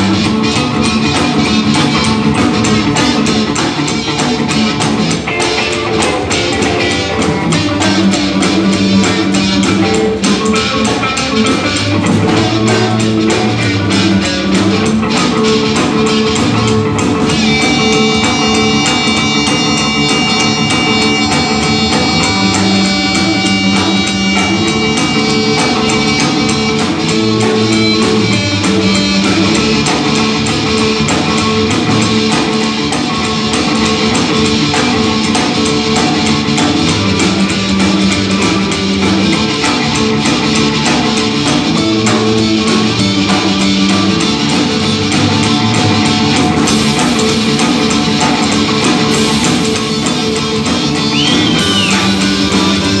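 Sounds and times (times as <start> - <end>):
drum kit: 0.0 - 53.0
electric guitar: 0.0 - 53.0
upright double bass: 0.0 - 53.0
amplified harmonica: 17.3 - 53.0.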